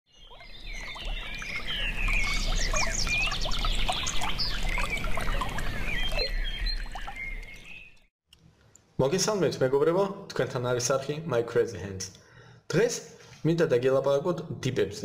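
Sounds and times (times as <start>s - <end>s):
small birds chirping: 0.1s - 8.1s
running water rushing: 0.4s - 8.0s.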